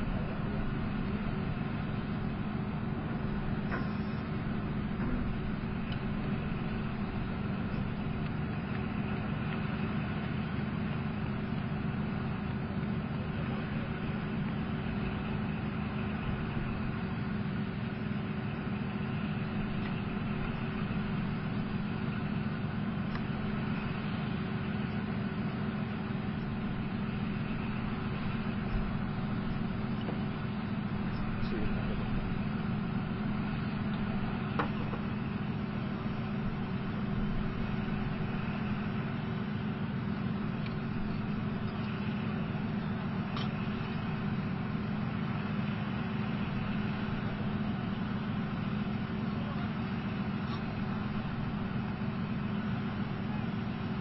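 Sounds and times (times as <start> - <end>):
constant hum: 0.0 - 54.0
tank diesel engine running: 0.0 - 54.0.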